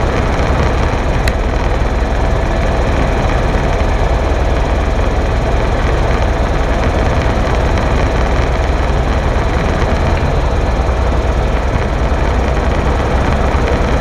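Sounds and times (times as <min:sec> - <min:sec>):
helicopter rotor and engine: 0:00.0 - 0:14.0.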